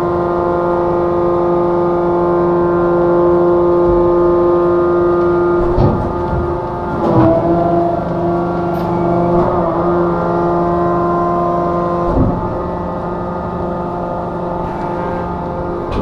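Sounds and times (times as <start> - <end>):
machine humming with whine: 0.0 - 16.0
machine clunk: 5.1 - 16.0.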